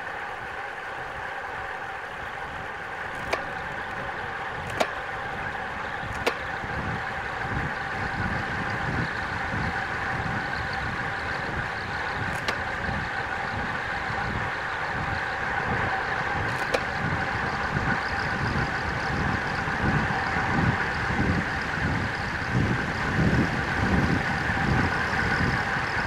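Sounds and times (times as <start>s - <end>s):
bike tyres on road: 0.0s - 26.0s
steady whine: 0.0s - 26.0s
wind rushing over microphone: 2.5s - 26.0s
sharp clicks: 3.1s - 5.1s, 6.0s - 6.6s, 12.1s - 12.9s, 16.5s - 17.0s.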